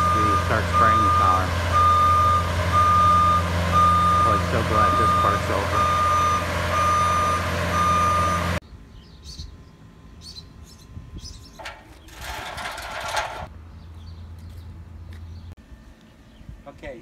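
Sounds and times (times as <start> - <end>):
reversing alarm beeping: 0.0 - 8.6
machine engine running: 11.6 - 13.5.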